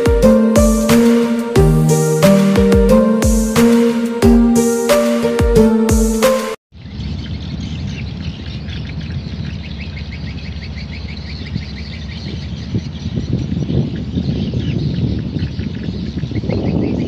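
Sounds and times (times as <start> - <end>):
small birds chirping: 6.8 - 17.0.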